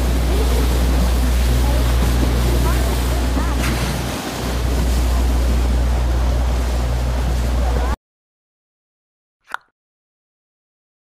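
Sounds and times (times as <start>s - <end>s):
boat engine low rumble: 0.0s - 8.0s
rushing water: 0.0s - 8.0s.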